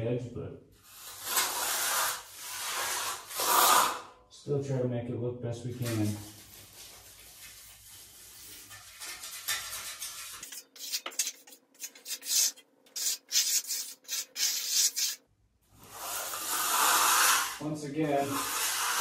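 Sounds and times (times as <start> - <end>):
trowel scraping wet concrete: 1.1 - 4.0, 8.6 - 15.2, 15.9 - 19.0.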